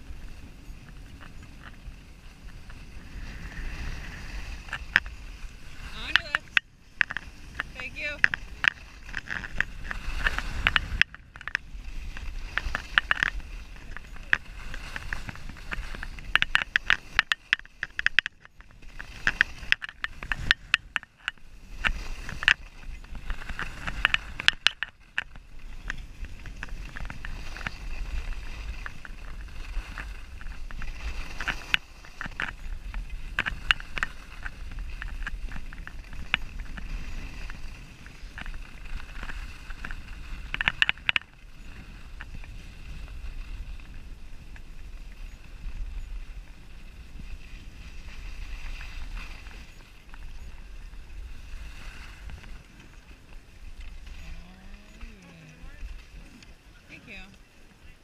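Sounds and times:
skis scraping over snow: 0.0s - 58.0s
wind on microphone: 0.0s - 58.0s
sharp clicks and scrapes: 0.9s - 42.6s.

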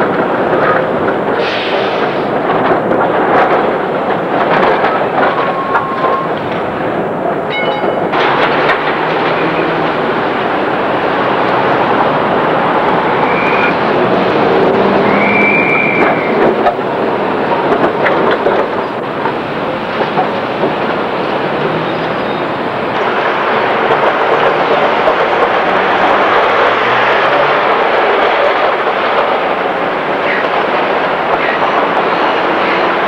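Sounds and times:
tram wheels clattering on rails: 0.0s - 33.0s
wheels squealing: 4.6s - 6.6s, 11.6s - 33.0s.

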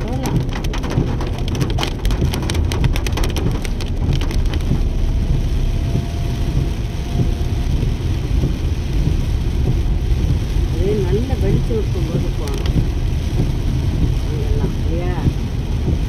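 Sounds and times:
rain ticking on a car: 0.0s - 16.0s
road and engine rumble: 0.0s - 16.0s.

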